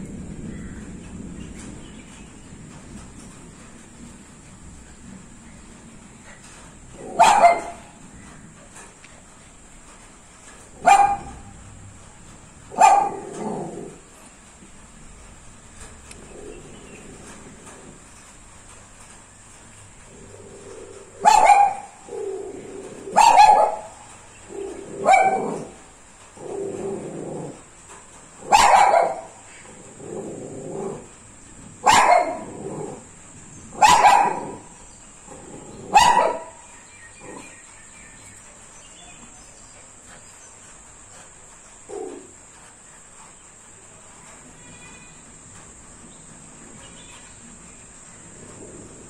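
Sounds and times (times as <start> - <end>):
dog barking: 7.0 - 8.0, 10.8 - 11.6, 12.7 - 13.8, 21.2 - 22.0, 23.1 - 24.0, 25.0 - 25.8, 28.4 - 29.4, 31.8 - 32.9, 33.8 - 34.7, 35.8 - 36.6.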